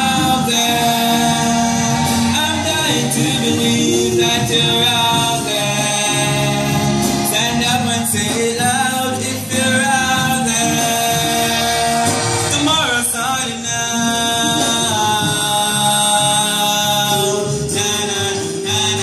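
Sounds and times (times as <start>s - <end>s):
choir singing chords: 9.0s - 12.7s.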